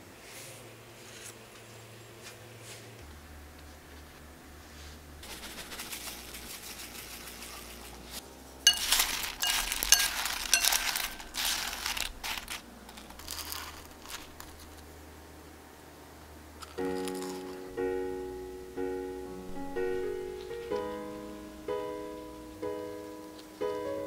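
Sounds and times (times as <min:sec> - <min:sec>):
wooden utensils clinking on glass bowl: 0:08.7 - 0:12.6
sugar rustling and crunching: 0:08.7 - 0:14.9, 0:16.6 - 0:17.7.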